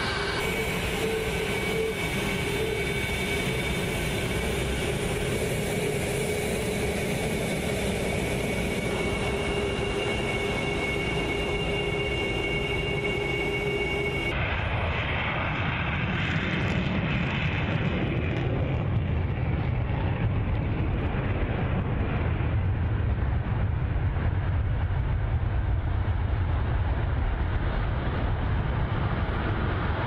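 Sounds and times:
jet engines running: 0.0 - 30.0.

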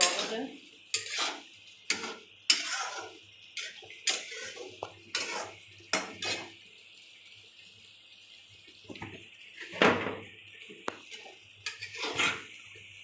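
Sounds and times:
metal spatula scraping a pan: 0.0 - 6.6, 11.1 - 12.6.

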